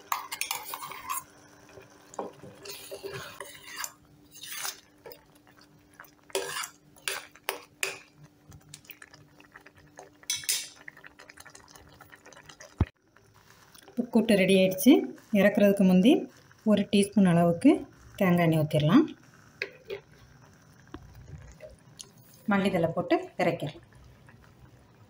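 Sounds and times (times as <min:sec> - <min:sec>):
ladle clinking and scraping pot: 0:00.0 - 0:05.2, 0:06.3 - 0:08.1, 0:10.3 - 0:10.8.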